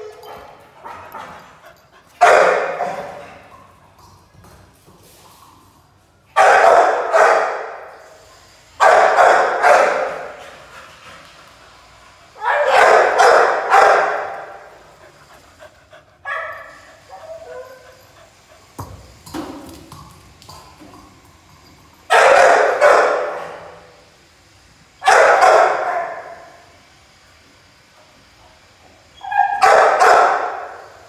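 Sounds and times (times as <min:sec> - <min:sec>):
dog barking with echo: 0:02.2 - 0:03.0, 0:06.4 - 0:07.7, 0:08.8 - 0:10.1, 0:12.4 - 0:14.5, 0:29.6 - 0:30.7.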